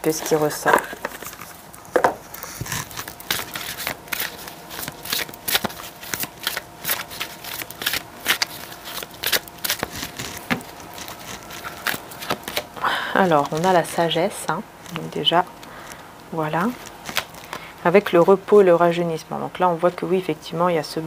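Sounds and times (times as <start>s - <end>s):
cards being shuffled: 0.2s - 14.0s.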